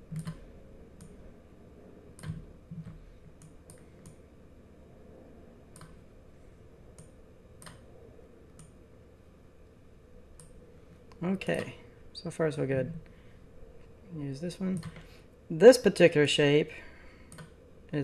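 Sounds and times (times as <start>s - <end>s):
mouse and keyboard clicks: 0.1s - 0.4s.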